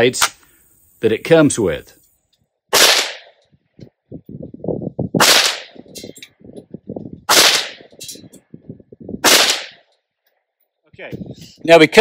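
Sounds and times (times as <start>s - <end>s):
rifle shots: 2.7s - 3.4s, 5.2s - 5.8s, 7.3s - 7.9s, 9.2s - 9.9s.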